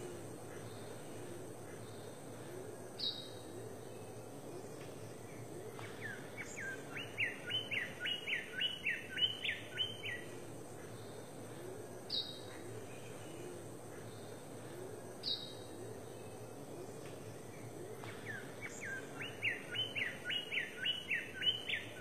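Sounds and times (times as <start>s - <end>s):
songbird singing repeated notes: 3.0s - 11.4s, 12.1s - 13.4s, 15.2s - 22.0s.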